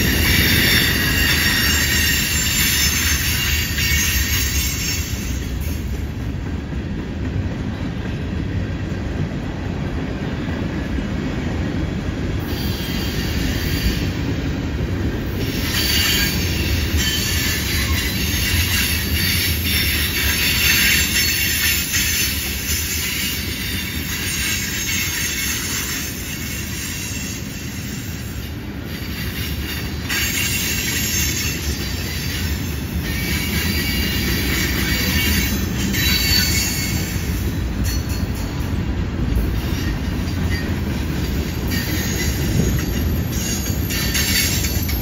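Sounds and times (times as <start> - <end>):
wheel flange squeal: 0.0 - 5.6, 15.4 - 28.4, 29.1 - 38.2
train wheels rumbling on rail: 0.0 - 45.0.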